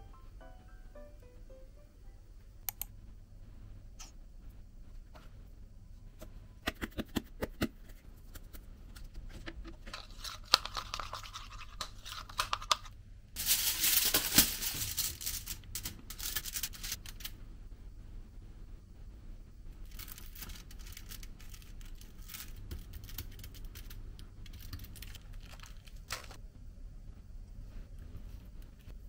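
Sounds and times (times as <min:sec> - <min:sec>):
spoon scraping plastic bowl: 0:09.0 - 0:12.9
packaging crinkling: 0:09.7 - 0:17.3, 0:19.8 - 0:26.4.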